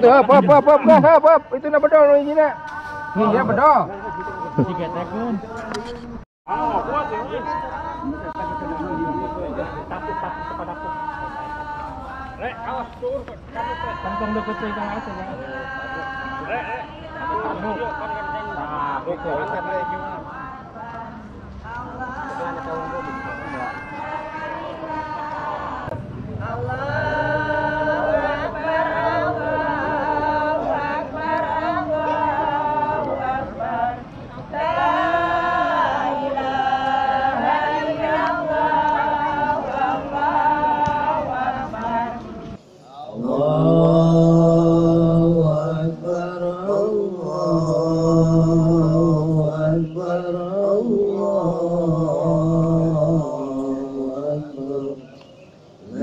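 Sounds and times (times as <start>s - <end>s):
man chanting: 0.0s - 9.9s, 43.0s - 55.0s
voices chanting together: 0.0s - 56.0s.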